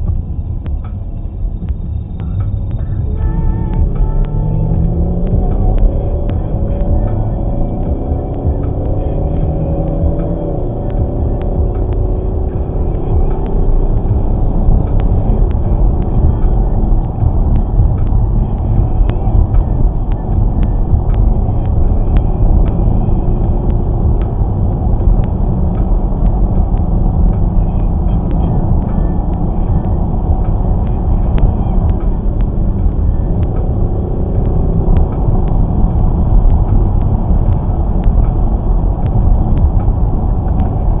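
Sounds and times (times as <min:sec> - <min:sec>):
faint light ticks: 0:00.0 - 0:09.2
car cabin road rumble: 0:00.0 - 0:41.0.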